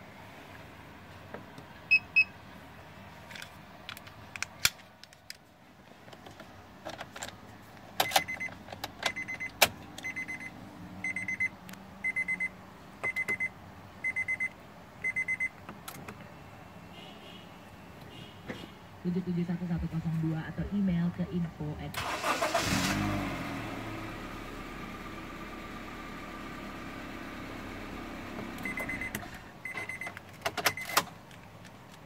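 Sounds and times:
electronic beeping: 0:09.1 - 0:15.5.

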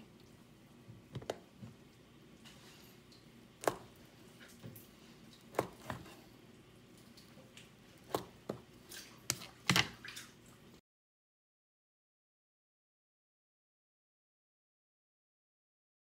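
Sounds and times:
knife slicing firm cake: 0:05.4 - 0:06.3.

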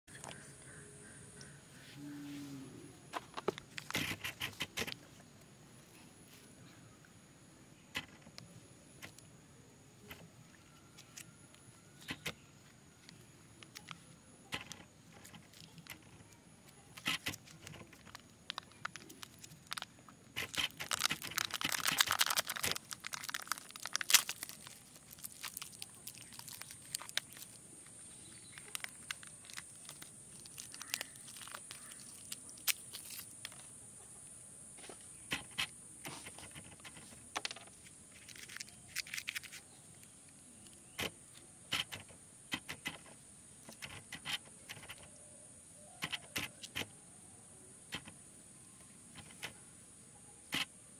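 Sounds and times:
foil lid crinkling and tearing: 0:17.0 - 0:27.6, 0:28.3 - 0:33.6, 0:38.1 - 0:39.7.

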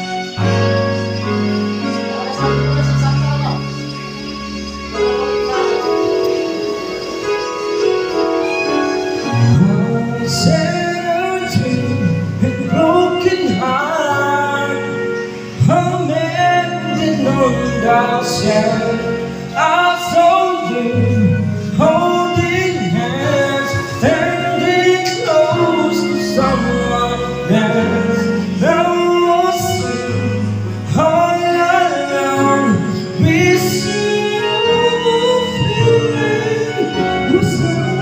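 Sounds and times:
backing music with chords: 0:00.0 - 0:38.0
man singing a slow ballad: 0:09.3 - 0:38.0.

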